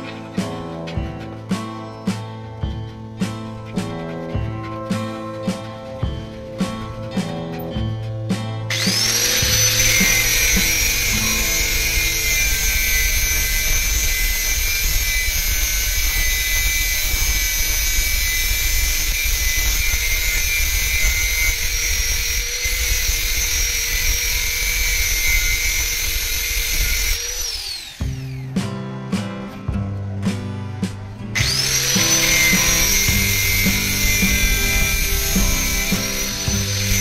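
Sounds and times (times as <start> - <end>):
grinding hiss: 8.7 - 28.4, 31.4 - 37.0
power tool motor whining: 8.7 - 28.5, 31.4 - 37.0.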